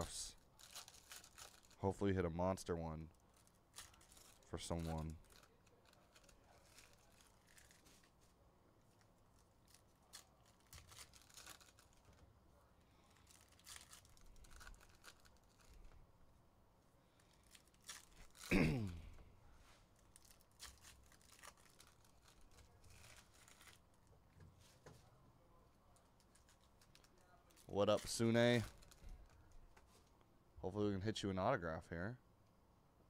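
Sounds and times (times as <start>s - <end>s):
card packs tearing and rustling: 0.0s - 1.8s, 3.4s - 8.1s, 9.6s - 12.2s, 13.2s - 15.8s, 17.2s - 18.6s, 20.1s - 23.8s, 26.3s - 29.4s.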